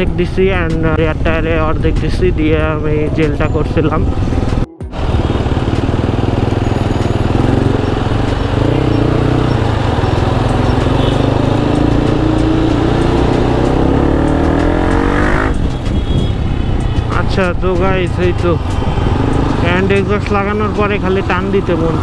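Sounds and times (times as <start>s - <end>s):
motorcycle engine revving: 4.1s - 15.9s, 18.6s - 20.8s.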